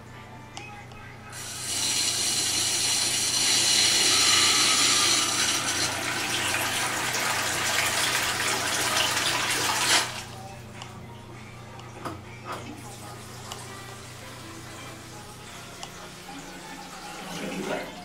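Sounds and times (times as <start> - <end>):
faucet water splashing into basin: 1.4 - 10.2.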